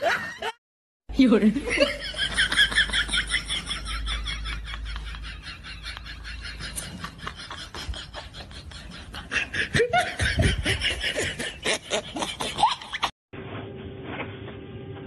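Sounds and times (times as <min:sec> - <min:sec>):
people laughing: 0:01.6 - 0:13.1.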